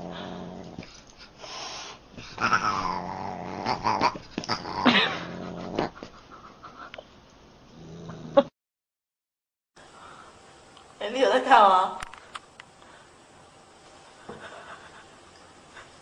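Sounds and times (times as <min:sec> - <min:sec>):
dog growling: 0:00.0 - 0:01.0, 0:02.2 - 0:06.2, 0:07.7 - 0:08.5.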